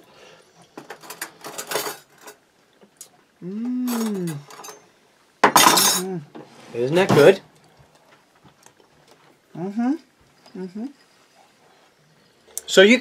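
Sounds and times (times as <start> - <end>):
man saying mmm: 3.4 - 4.5.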